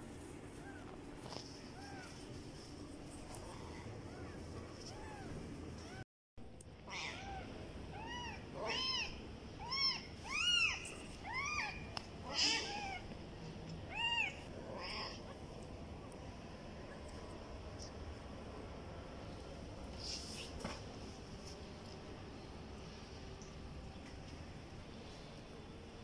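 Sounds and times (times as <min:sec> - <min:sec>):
kittens mewing: 0:06.8 - 0:13.1.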